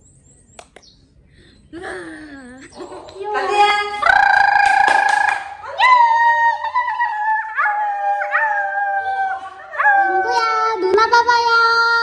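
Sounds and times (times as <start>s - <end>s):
person howling: 4.0s - 10.8s.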